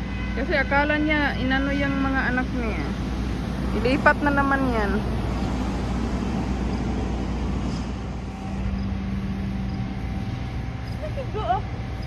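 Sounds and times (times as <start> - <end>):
steady hum: 0.0 - 12.0
low background rumble: 0.7 - 12.0.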